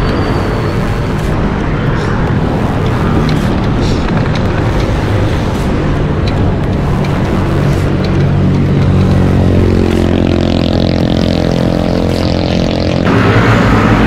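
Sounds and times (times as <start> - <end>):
road noise: 0.0 - 14.0
vehicle engine running: 0.0 - 14.0.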